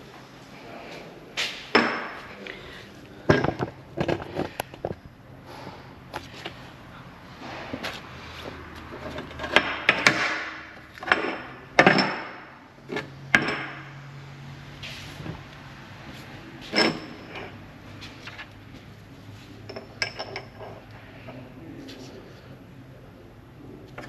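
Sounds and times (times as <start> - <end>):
metal parts clanking: 16.6 - 17.6.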